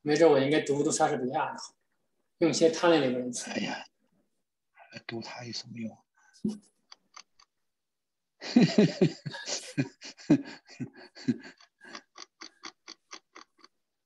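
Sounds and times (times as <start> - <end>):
person laughing: 8.4 - 13.6.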